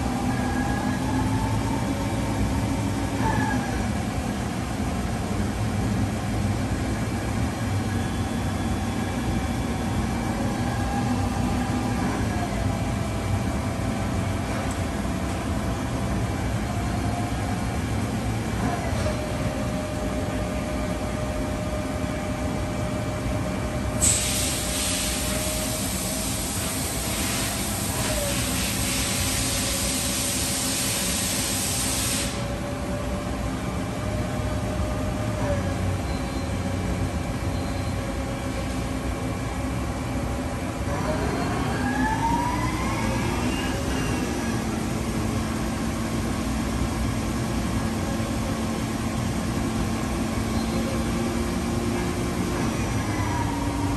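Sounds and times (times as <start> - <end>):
loud hiss: 24.0 - 32.5
machine whine: 40.9 - 53.9.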